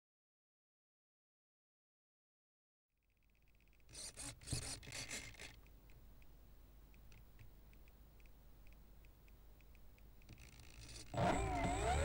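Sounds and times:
faint steady hum: 0:03.0 - 0:12.0
handling rasps on model plane: 0:03.8 - 0:05.6
light irregular ticks: 0:05.5 - 0:11.1.

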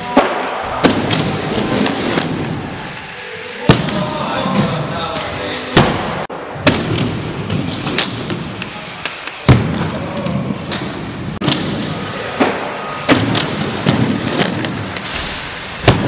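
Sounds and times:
skateboard wheels rolling on concrete: 0:06.8 - 0:16.0.

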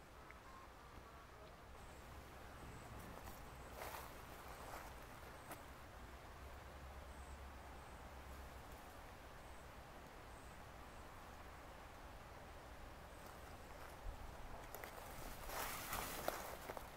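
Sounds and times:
faint steady hiss: 0:00.0 - 0:16.9
faint high chirps: 0:00.2 - 0:04.0
bear rustling in bushes: 0:03.0 - 0:05.6, 0:14.7 - 0:16.9.

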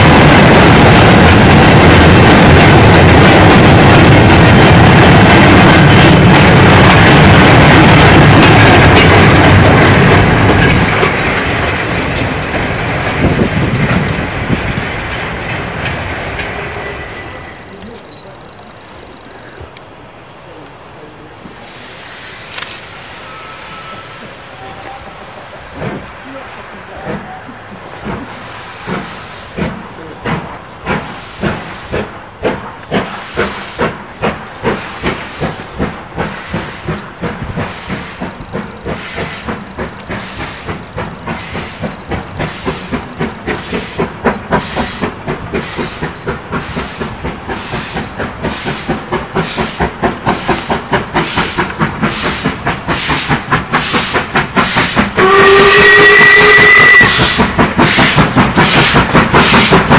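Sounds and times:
steam locomotive exhaust beats: 0:00.0 - 0:59.9
steam locomotive whistle: 0:23.2 - 0:25.3, 0:54.7 - 0:58.2.

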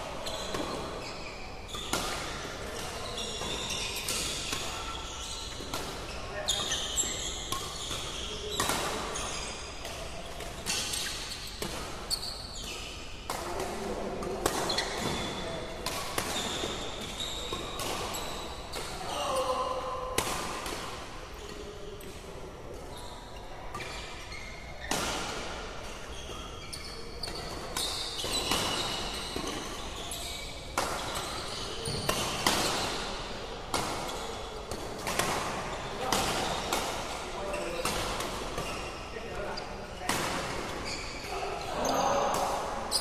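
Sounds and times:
shoes squeaking on court: 0:00.1 - 0:13.7, 0:14.4 - 0:19.6, 0:22.7 - 0:43.0
racket hitting shuttlecock: 0:05.6 - 0:12.1, 0:12.7 - 0:19.0, 0:20.2 - 0:21.0, 0:30.8 - 0:37.2, 0:37.8 - 0:38.8.

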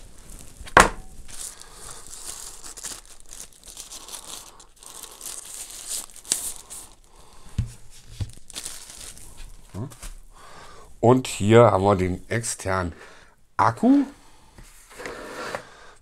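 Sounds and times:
plastic bag crinkling: 0:00.2 - 0:10.1.

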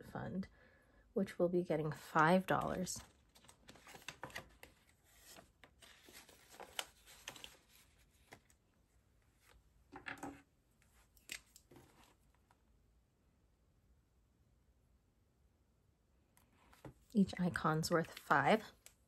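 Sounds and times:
paper rustling and crinkling: 0:02.6 - 0:08.6, 0:10.8 - 0:12.4.

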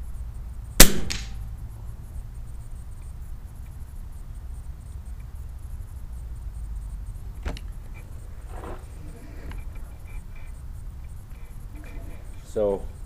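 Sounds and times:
air rifle shot: 0:00.8 - 0:01.4.

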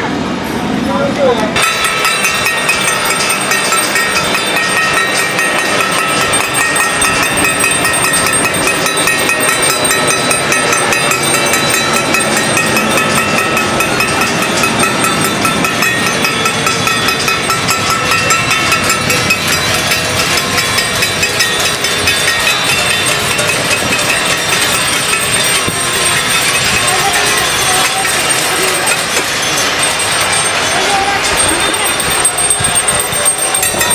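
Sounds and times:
metal clanging: 0:01.6 - 0:33.9.

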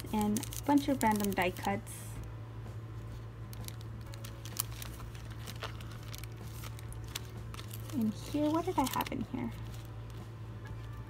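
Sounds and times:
paper tags rustling and crinkling: 0:00.0 - 0:01.8, 0:03.5 - 0:10.2.

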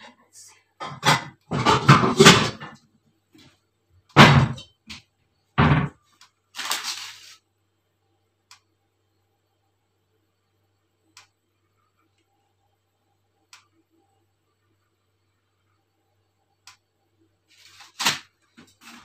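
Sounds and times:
cookware clattering: 0:00.8 - 0:02.8
heavy pot thuds: 0:04.2 - 0:04.7.

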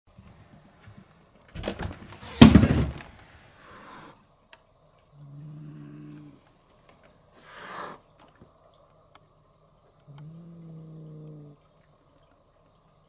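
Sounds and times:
door thump with rushing scrape: 0:01.6 - 0:03.1.

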